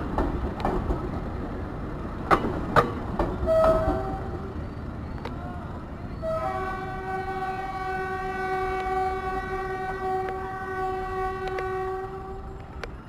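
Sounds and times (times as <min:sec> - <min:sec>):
train horn long blast: 0:03.4 - 0:04.6, 0:06.2 - 0:12.6.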